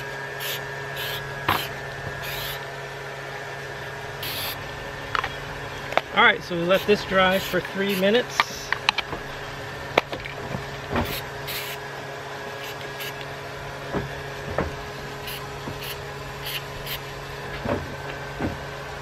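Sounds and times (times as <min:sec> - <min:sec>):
low hum: 0:00.0 - 0:19.0
aerosol can spraying: 0:00.4 - 0:02.6, 0:04.2 - 0:04.6, 0:11.0 - 0:11.8, 0:12.6 - 0:13.2, 0:15.2 - 0:17.0.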